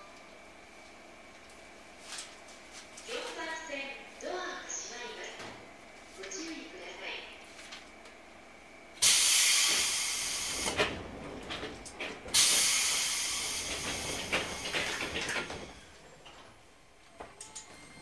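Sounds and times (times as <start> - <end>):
compressed air hissing: 9.0 - 10.8, 12.3 - 14.6.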